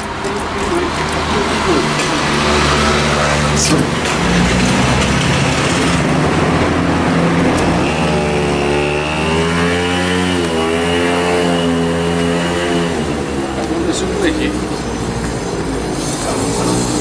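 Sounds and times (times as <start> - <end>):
vehicle engine running: 0.0 - 9.1.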